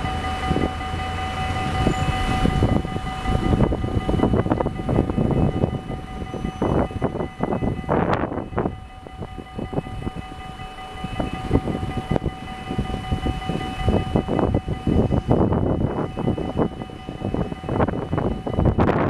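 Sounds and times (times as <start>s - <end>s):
electric tram whine: 0.0s - 19.0s.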